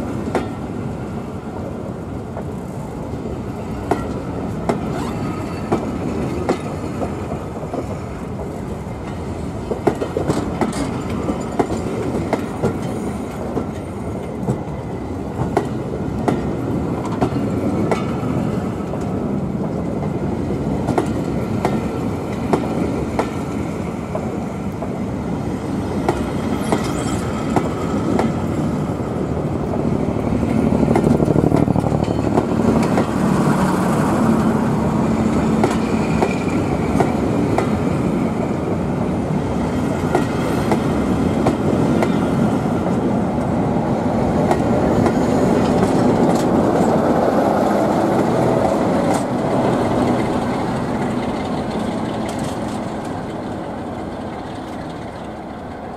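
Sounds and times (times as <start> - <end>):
train coaches rumbling past: 0.0 - 55.9
wheels clicking over rail joints: 3.8 - 20.2, 26.0 - 38.2, 44.3 - 55.9.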